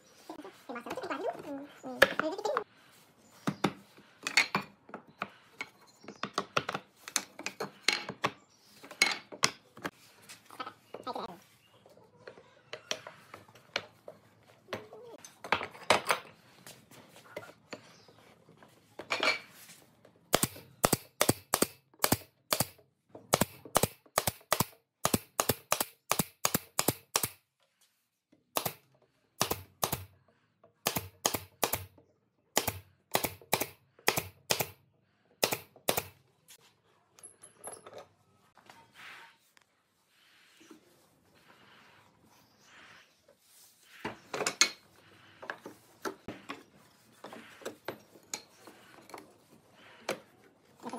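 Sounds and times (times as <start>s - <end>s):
nail gun firing: 20.3s - 27.4s, 28.6s - 28.8s, 29.4s - 30.1s, 30.8s - 31.9s, 32.6s - 34.8s, 35.4s - 36.2s.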